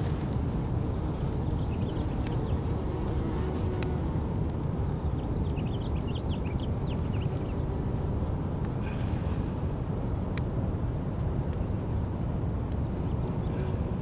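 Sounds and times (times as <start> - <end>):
bumble bees buzzing: 0.0 - 4.3
wind rumble on microphone: 0.0 - 14.0.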